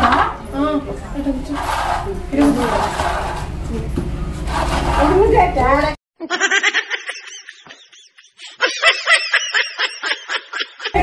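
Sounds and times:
comedy laughing sound effect: 6.2 - 11.0.

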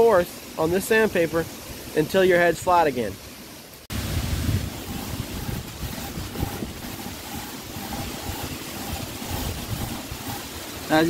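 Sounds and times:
metal scraping on sandpaper: 4.6 - 11.0.

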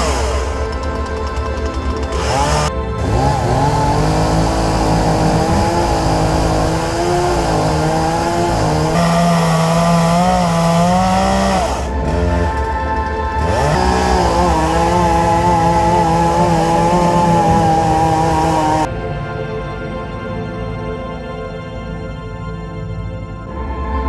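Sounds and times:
chainsaw cutting wood: 0.0 - 18.9.

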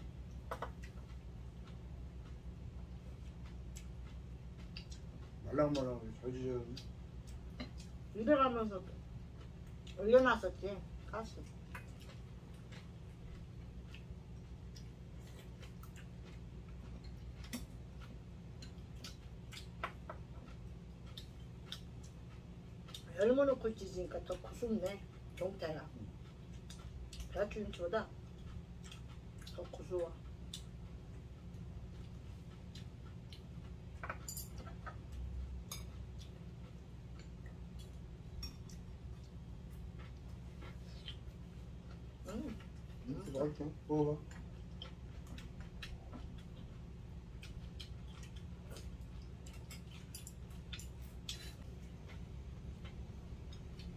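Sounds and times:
soft chewing: 0.0 - 53.9
steady low hum: 0.0 - 53.9
cutlery clinking against bowls: 34.0 - 36.0, 38.4 - 38.8, 49.4 - 51.5.

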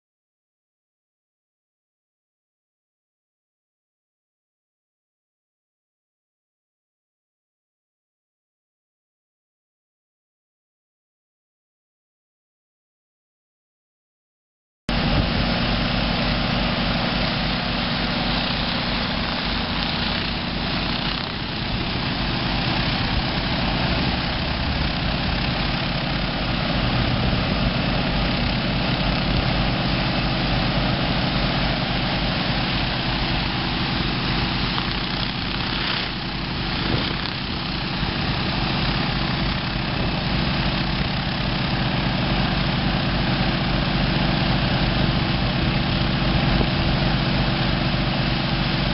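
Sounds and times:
engine drone: 14.9 - 48.9
hose suction: 14.9 - 48.9
water jets hissing on concrete: 14.9 - 48.9.

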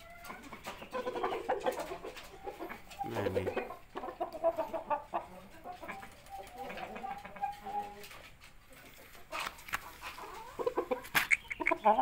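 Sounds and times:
rooster clucking: 0.0 - 12.0.

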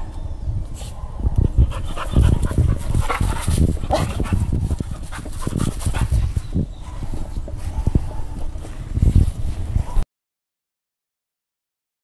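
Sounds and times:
dog barking: 7.7 - 8.4, 9.8 - 10.0.

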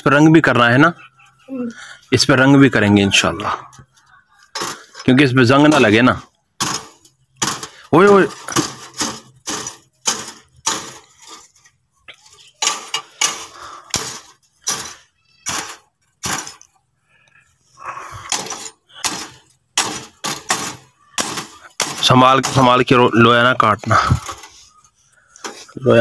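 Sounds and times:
metal scraping: 2.1 - 16.8.

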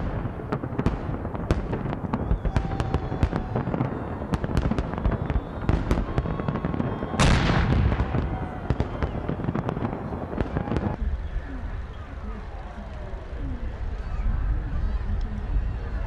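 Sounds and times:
dense crackling firework burst: 0.0 - 11.2
fireworks bursting: 0.0 - 11.9.

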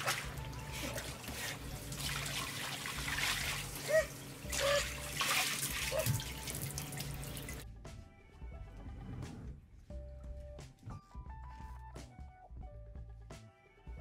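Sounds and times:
water running and trickling: 0.0 - 7.6.

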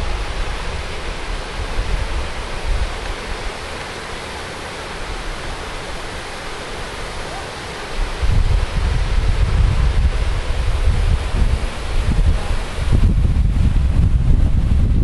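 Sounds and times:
wind buffeting microphone: 0.0 - 3.7, 7.9 - 15.0
rushing hiss: 0.0 - 15.0.

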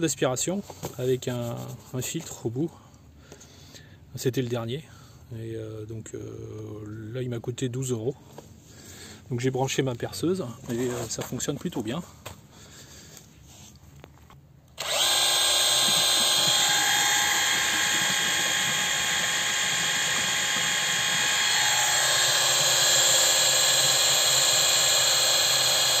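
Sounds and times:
cordless drill running: 14.8 - 26.0.

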